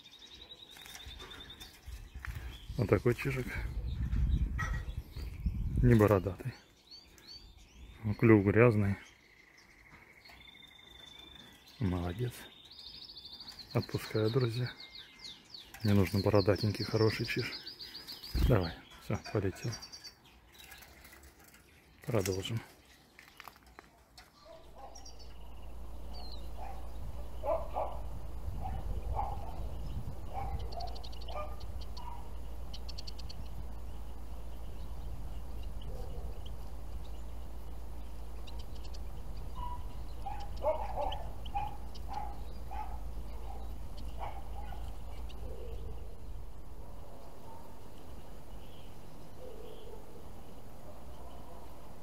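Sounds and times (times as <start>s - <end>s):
finches chirping: 0.0s - 23.5s, 24.2s - 52.0s
steady low rumble: 2.0s - 6.1s, 24.6s - 52.0s.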